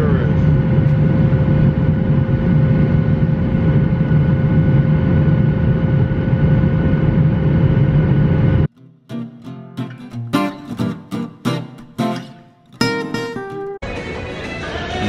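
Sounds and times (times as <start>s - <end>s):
jet engine rumble: 0.0s - 8.7s.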